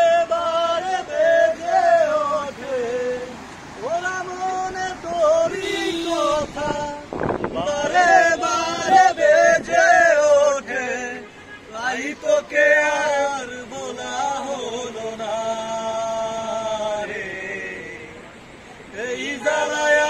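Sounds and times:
man singing: 0.0 - 18.2, 18.9 - 20.0.

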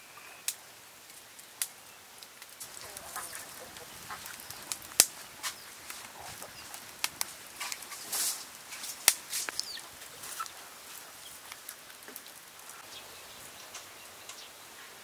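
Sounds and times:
outdoor hiss: 0.0 - 15.0
fire crackling and popping: 0.5 - 14.4
faint bird calls: 2.6 - 7.9.

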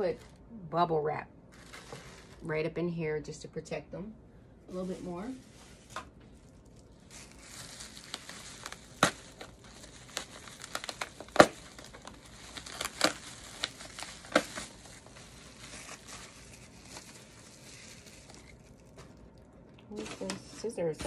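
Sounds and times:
bubble wrap crackling: 1.5 - 2.5, 4.7 - 20.6.

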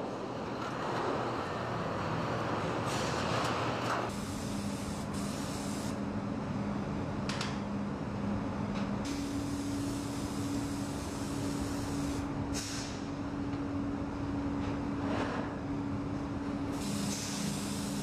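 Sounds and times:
short hisses: 12.6 - 13.0.

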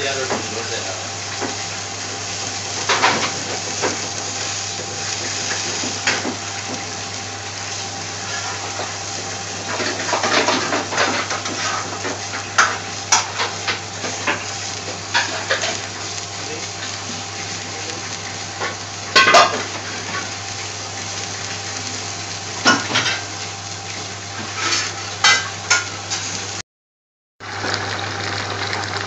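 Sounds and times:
metal utensil scraping a pot: 24.4 - 26.3.

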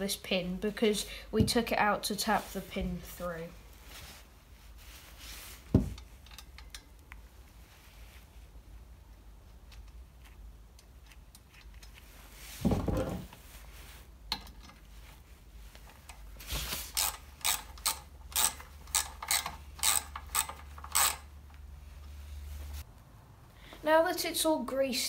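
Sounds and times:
socket ratchet clicking: 17.0 - 21.3.

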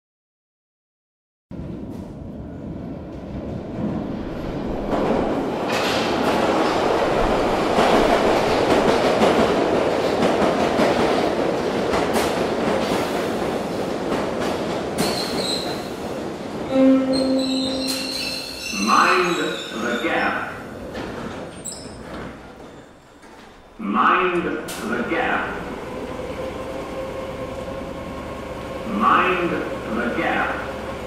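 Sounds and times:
metro train wheel noise: 1.5 - 31.0
short pitched tone: 16.7 - 19.0.

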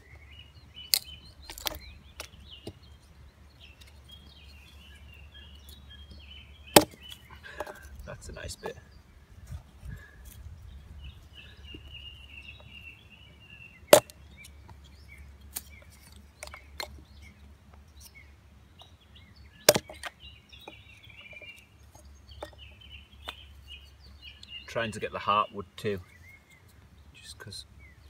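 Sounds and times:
bird chirping: 0.0 - 28.0
axe chopping wood: 6.7 - 7.8, 13.9 - 14.2, 19.6 - 20.1.

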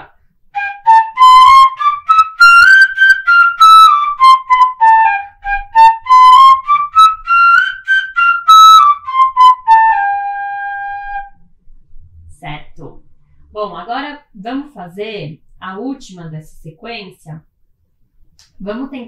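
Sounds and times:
fife playing a scale: 0.5 - 11.4.

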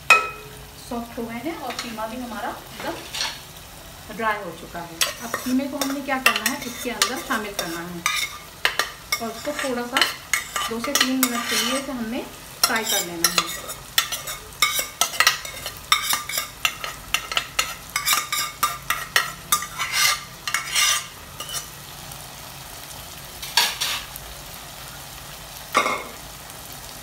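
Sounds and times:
low sizzle from pan: 0.0 - 27.0
spoon scraping a pot: 2.8 - 3.4, 5.0 - 12.0, 12.6 - 21.7.

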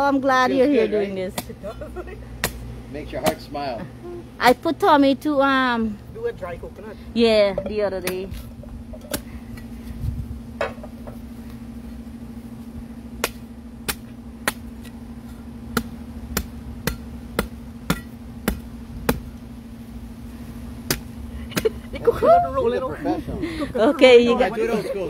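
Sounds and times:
machete chopping coconut husk: 1.3 - 1.7, 2.4 - 3.6, 8.0 - 9.7, 13.1 - 19.5, 20.8 - 21.8.

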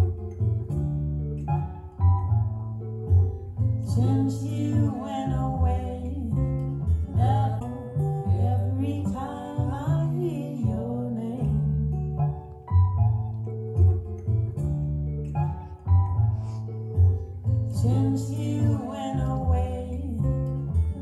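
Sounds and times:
deep bass: 0.0 - 21.0
plucked guitar notes: 0.0 - 21.0
woman singing slow jazz: 3.8 - 12.6, 17.6 - 21.0.

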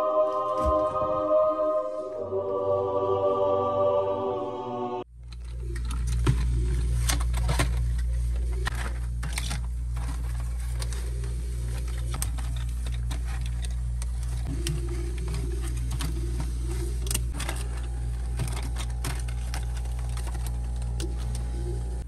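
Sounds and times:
steady low hum: 0.0 - 22.0
plastic trays clicking and crinkling: 5.2 - 22.0.

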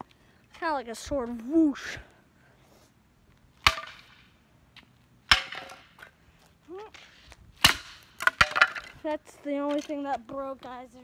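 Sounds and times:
wooden chair smashing on concrete: 7.6 - 9.0.

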